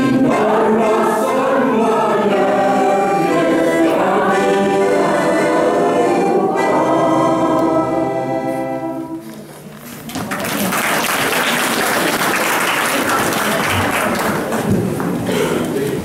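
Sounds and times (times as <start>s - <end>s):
audience applause: 10.1s - 15.2s.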